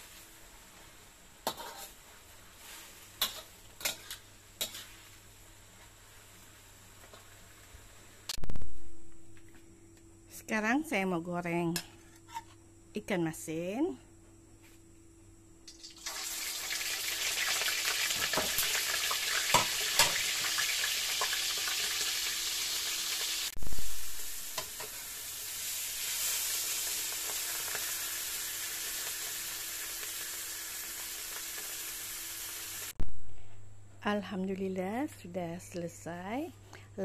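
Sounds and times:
fish sizzling in hot oil: 15.7s - 33.0s.

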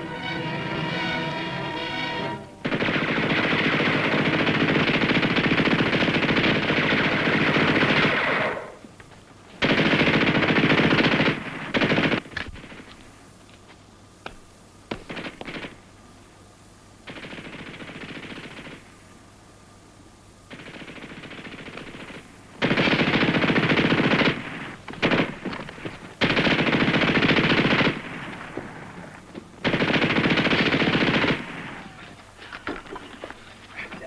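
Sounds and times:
machine gun firing bursts: 2.6s - 8.8s, 9.6s - 12.9s, 14.9s - 15.8s, 17.0s - 18.9s, 20.5s - 28.8s, 29.6s - 32.1s.

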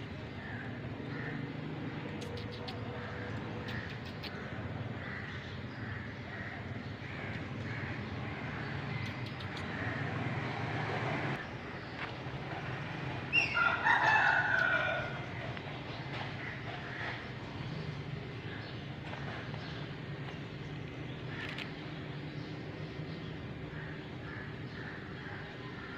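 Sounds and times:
rooster crowing: 13.3s - 15.4s.

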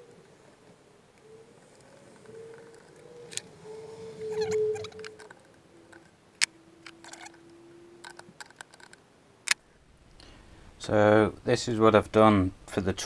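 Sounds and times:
faint steady hum: 0.0s - 13.0s
sharp metal clicks: 5.0s - 9.6s.

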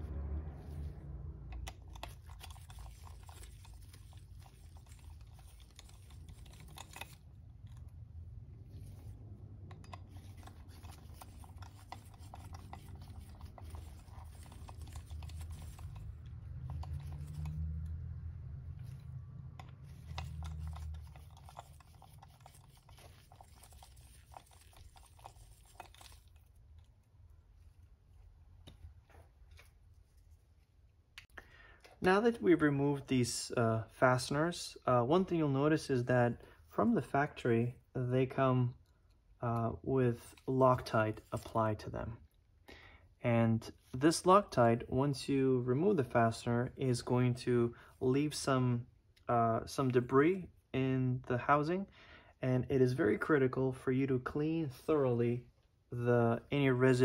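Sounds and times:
low rumble: 0.0s - 1.8s
screwdriver scratchy rubbing: 1.5s - 8.0s, 8.6s - 18.0s, 18.8s - 26.9s, 40.1s - 41.8s.

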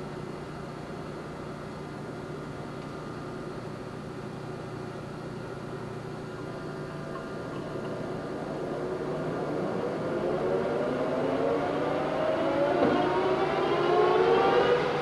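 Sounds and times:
lathe whine rising: 6.4s - 15.0s.

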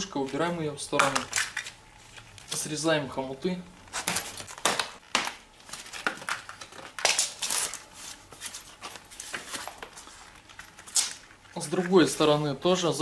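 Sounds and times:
packing foam and plastic rustling: 3.8s - 12.4s.

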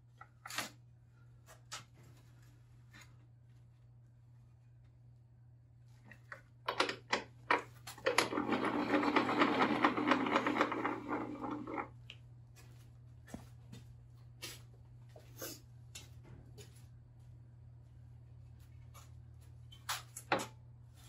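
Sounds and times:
mechanical gear rattle: 8.0s - 11.9s.

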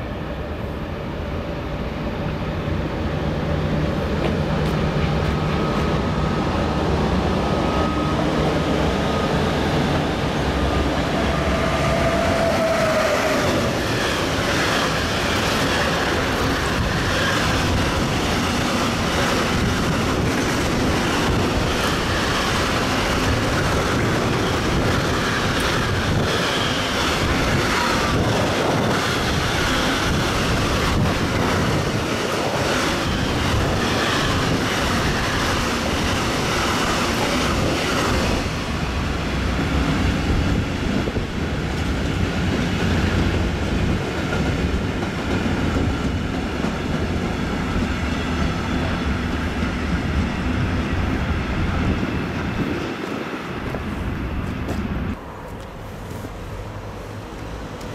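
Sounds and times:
freight train passing at speed: 0.0s - 57.9s.

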